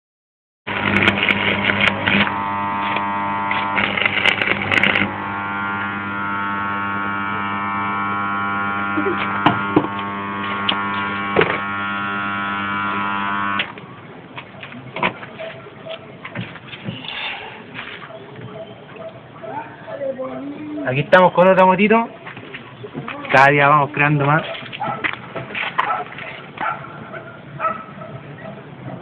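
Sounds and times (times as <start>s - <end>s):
welding arc crackling: 0.7s - 13.8s
electrical hum: 0.7s - 16.8s.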